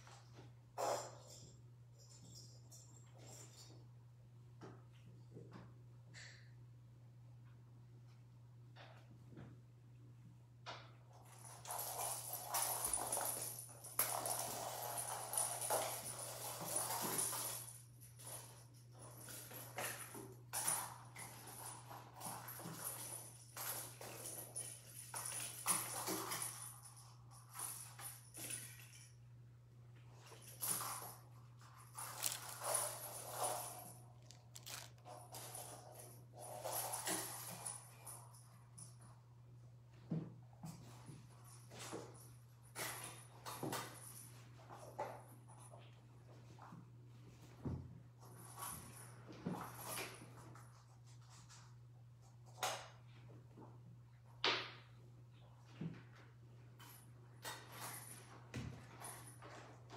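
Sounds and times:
toys rattling and jingling: 11.2s - 29.3s, 30.1s - 39.1s
kittens scuffling: 30.0s - 37.1s.

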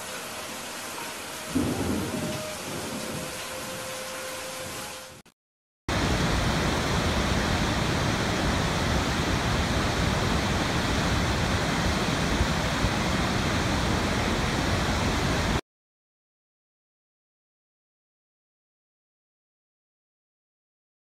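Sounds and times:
waterfall rushing water: 0.0s - 5.2s, 5.9s - 15.6s.

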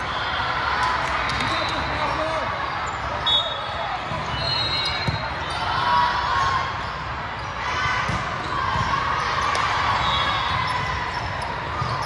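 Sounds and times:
crowd voices: 0.0s - 12.0s
volleyball hits and bounces: 7.9s - 9.8s.

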